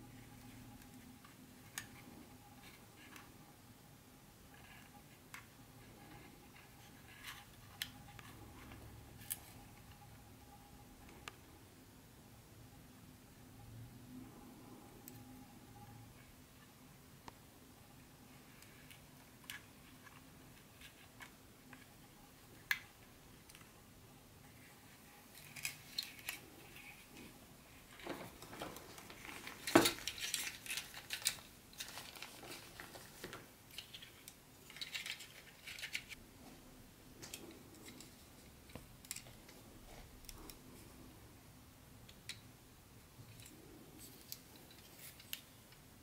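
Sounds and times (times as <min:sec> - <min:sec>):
plastic wrapping crinkling: 0:27.9 - 0:36.2.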